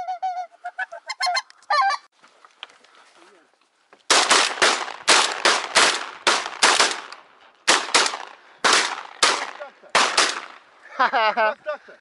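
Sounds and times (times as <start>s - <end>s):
shotgun shots: 4.1s - 10.6s.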